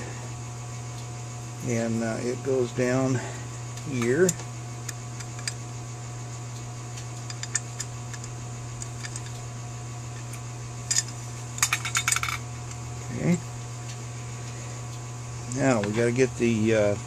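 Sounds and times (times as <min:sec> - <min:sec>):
electrical hum: 0:00.0 - 0:17.0
metal parts clicking: 0:07.3 - 0:09.4, 0:10.9 - 0:12.4.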